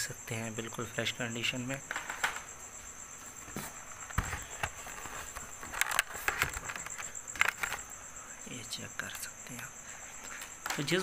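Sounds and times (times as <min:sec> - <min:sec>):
crickets chirping: 0:00.0 - 0:11.0
cardboard rustling: 0:03.3 - 0:07.9.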